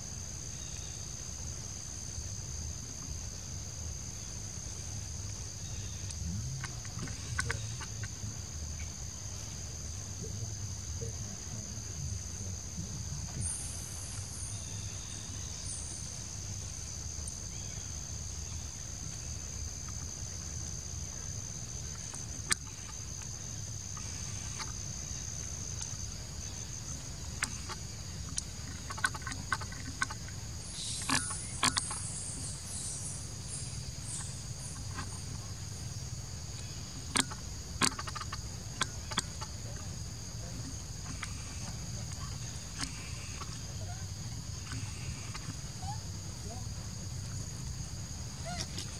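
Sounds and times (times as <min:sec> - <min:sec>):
rustles: 0:00.0 - 0:48.9
shrill insect chorus: 0:00.0 - 0:48.9.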